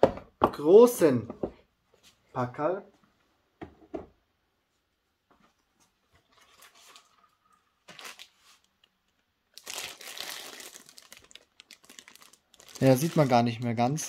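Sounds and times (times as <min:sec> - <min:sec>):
plastic wrapping crinkling: 0:06.4 - 0:14.0.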